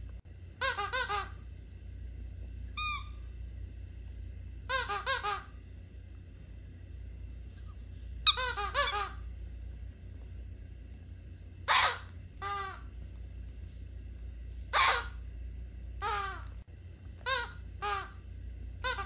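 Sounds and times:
squeaky dog toy squeaking: 0:02.8 - 0:03.2, 0:04.7 - 0:05.5, 0:08.2 - 0:09.2, 0:11.7 - 0:12.8.

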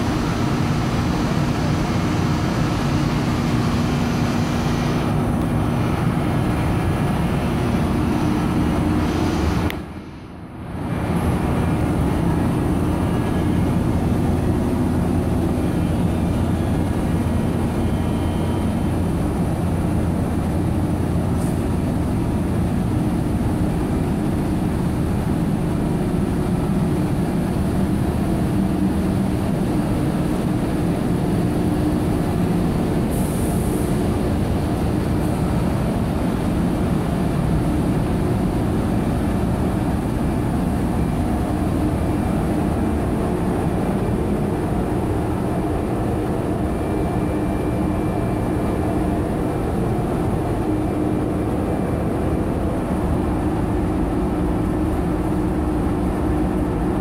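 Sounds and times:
industrial blowers and motors droning: 0:00.0 - 0:57.0.

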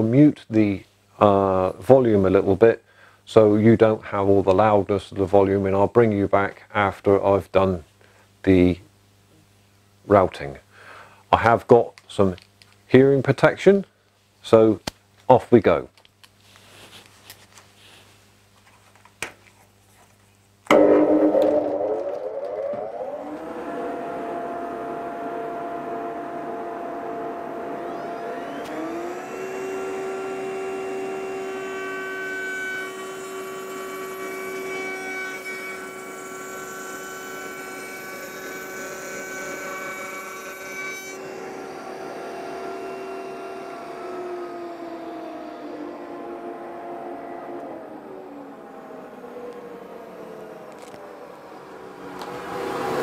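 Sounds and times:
rising whine: 0:20.7 - 0:31.6, 0:41.2 - 0:53.0
dust extractor: 0:20.7 - 0:53.0
router motor running: 0:20.7 - 0:53.0.

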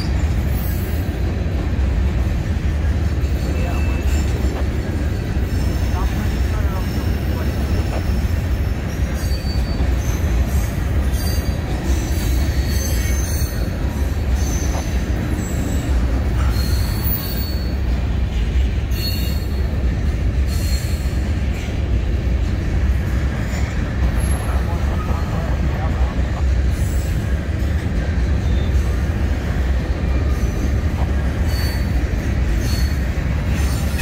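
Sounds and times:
freight train heavy rumble: 0:00.0 - 0:34.0
high-pitched wheel squeals: 0:03.2 - 0:17.8, 0:18.9 - 0:19.6, 0:31.4 - 0:32.0, 0:32.6 - 0:34.0.

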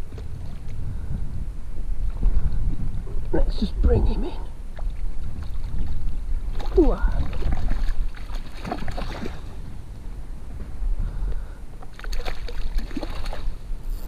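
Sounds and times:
wind rumbling on microphone: 0:00.0 - 0:14.0
fish thrashing and splashing: 0:04.8 - 0:09.6, 0:11.8 - 0:13.6.

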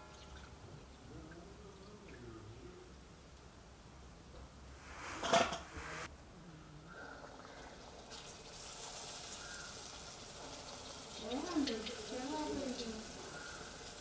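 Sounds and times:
hiss and clatter burst: 0:04.8 - 0:06.1
batter sizzling in hot oil: 0:07.8 - 0:14.0.

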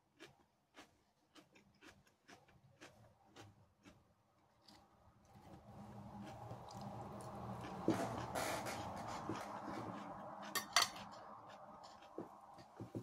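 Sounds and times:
cutlery scraping on plate: 0:07.9 - 0:11.2.

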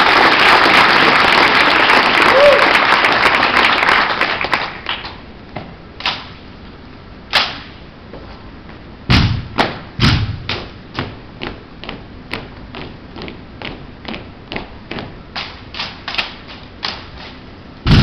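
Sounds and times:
applause: 0:00.0 - 0:05.2
heavy thumps: 0:09.1 - 0:11.2.

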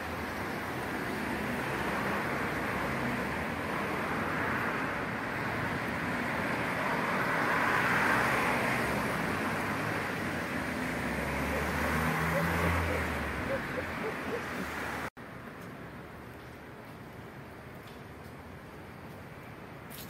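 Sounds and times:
vehicle passing: 0:00.0 - 0:15.1
city road traffic: 0:00.0 - 0:20.0.

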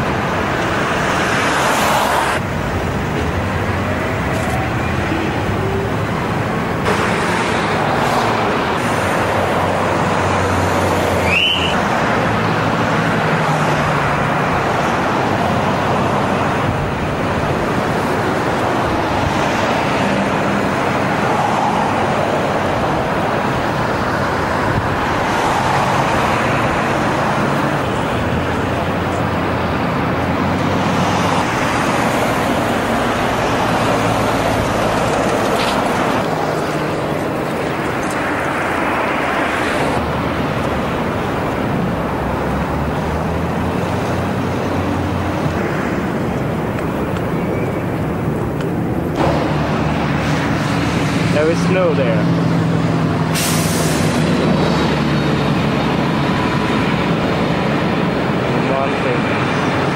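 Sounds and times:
cars and buses passing: 0:00.0 - 0:59.9.

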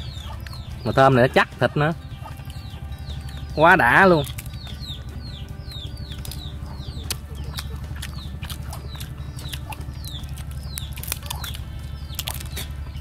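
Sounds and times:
chicks peeping: 0:00.0 - 0:13.0
steady low hum: 0:00.0 - 0:13.0
sharp clicks: 0:05.7 - 0:12.8.

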